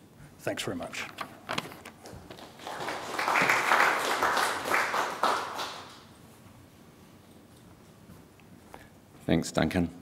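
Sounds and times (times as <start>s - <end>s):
small audience applauding: 2.0s - 6.2s.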